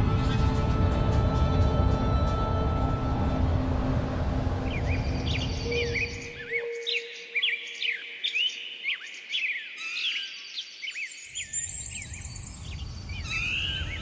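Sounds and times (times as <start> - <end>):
low outdoor rumble: 0.0 - 6.6
small birds chirping: 4.6 - 14.0.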